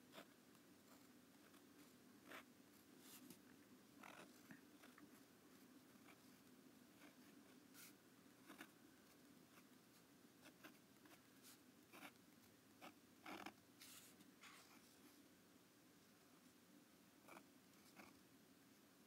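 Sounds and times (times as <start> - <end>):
pen scratching on paper: 0.1 - 3.3, 4.0 - 5.2, 7.0 - 8.8, 10.4 - 12.2, 12.8 - 14.8, 17.2 - 18.2.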